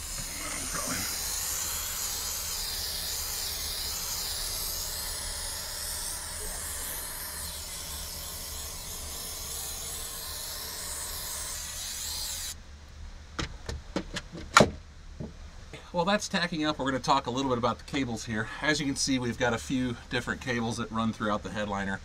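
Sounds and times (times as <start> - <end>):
aerosol can spraying hiss: 0.0 - 12.6.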